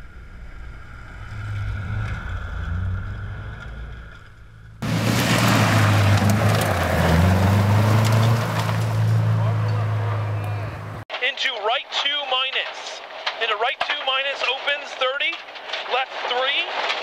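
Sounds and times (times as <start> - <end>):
rally car engine revving: 0.1 - 11.0
gravel spraying from tyres: 0.5 - 9.4.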